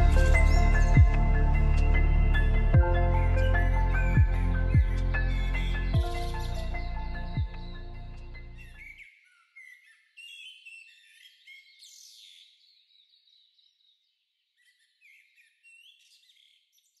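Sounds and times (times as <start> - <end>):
background music: 0.0 - 8.8
birds chirping and whistling: 0.0 - 12.4.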